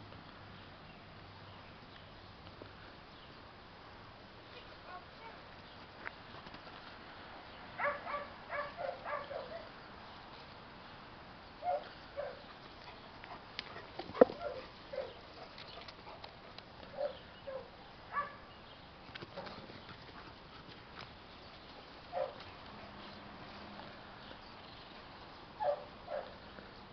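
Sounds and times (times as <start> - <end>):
dogs barking: 7.8 - 9.7, 11.6 - 12.5, 13.3 - 15.5, 16.9 - 18.5, 22.1 - 22.5, 25.6 - 26.4.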